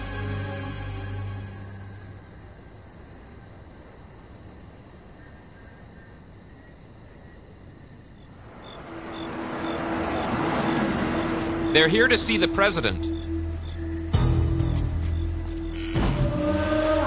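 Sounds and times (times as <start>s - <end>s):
music cue: 0.0s - 2.2s, 8.8s - 17.0s
high insect chirps: 0.0s - 17.0s
wash of outdoor noise: 0.0s - 17.0s.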